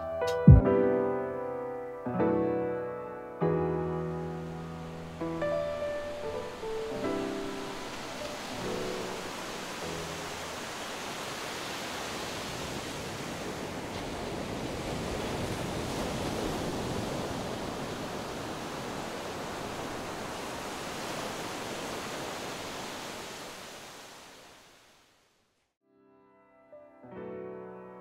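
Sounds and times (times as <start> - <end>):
ocean waves breaking: 4.3 - 25.0.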